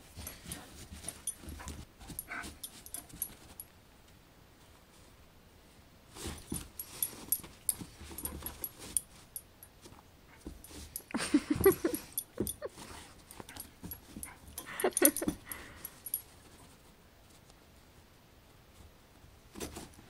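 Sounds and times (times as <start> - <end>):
dog scuffling: 0.0 - 3.6, 6.1 - 17.5.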